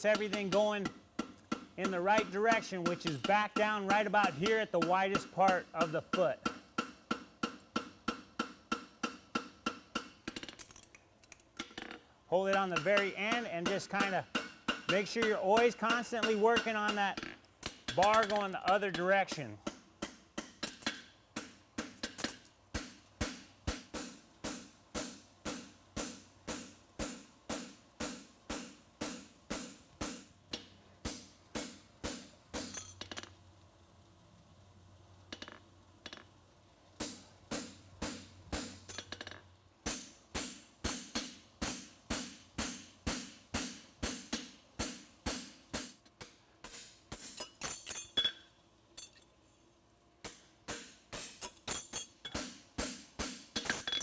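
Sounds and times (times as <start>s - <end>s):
hammer ringing on horseshoe: 46.6s - 49.2s.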